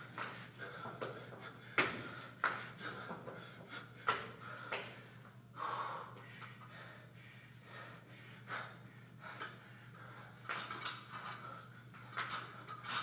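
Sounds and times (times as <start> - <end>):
man breathing hard and gasping: 0.2 - 10.6.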